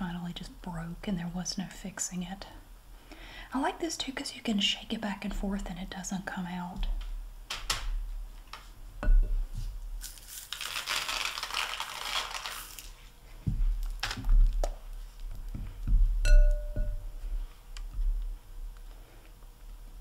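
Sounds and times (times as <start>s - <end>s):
rustling crinkling: 9.6s - 16.2s
sharp clink: 16.3s - 17.0s.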